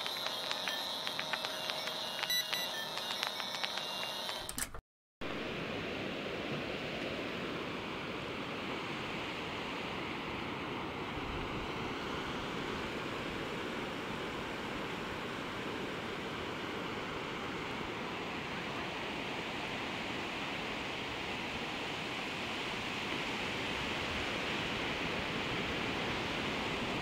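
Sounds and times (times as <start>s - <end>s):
intro clicks and tone: 0.0s - 4.6s
sea surf on sandy beach: 5.3s - 27.0s.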